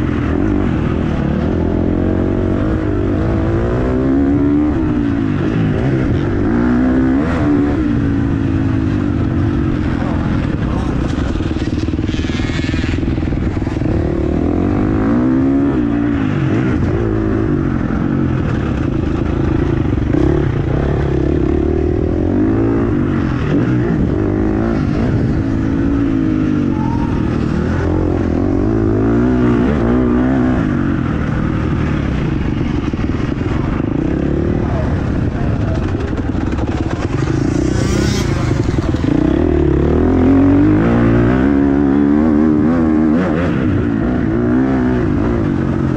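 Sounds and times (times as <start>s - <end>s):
motocross bike engine revving: 0.0s - 45.9s.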